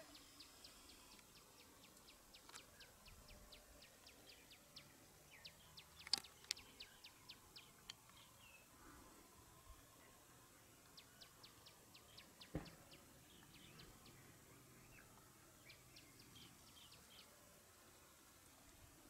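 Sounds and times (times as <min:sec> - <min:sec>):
small bird chirping: 0:00.0 - 0:08.7.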